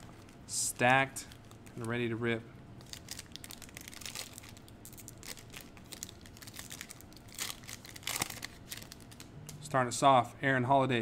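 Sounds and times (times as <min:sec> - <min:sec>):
foil wrapper crinkling and tearing: 0:02.8 - 0:09.3
foil ripping: 0:02.9 - 0:09.0.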